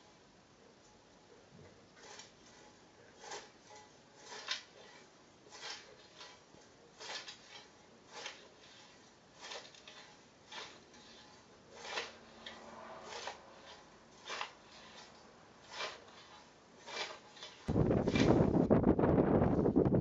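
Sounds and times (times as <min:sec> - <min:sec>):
scythe swishing through grass: 0:07.0 - 0:18.6
wind on microphone: 0:17.7 - 0:20.0.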